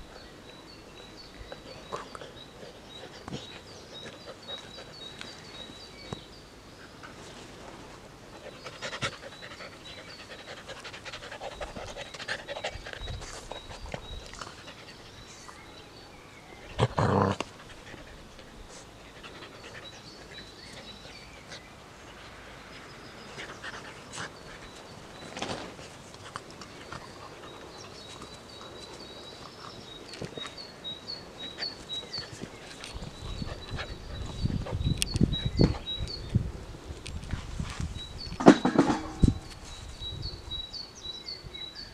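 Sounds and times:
small birds chirping: 0.0s - 41.9s
puppy panting: 8.4s - 15.3s, 31.4s - 35.9s.

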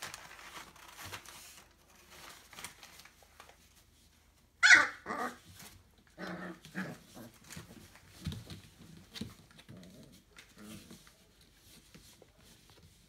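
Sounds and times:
puppies crying: 4.6s - 5.4s.

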